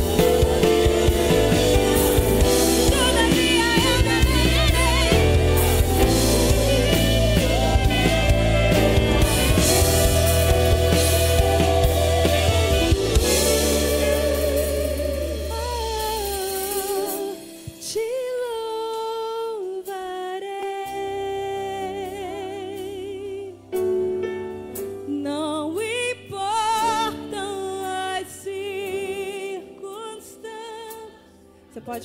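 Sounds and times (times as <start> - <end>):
sustained accompaniment: 0.0 - 17.6.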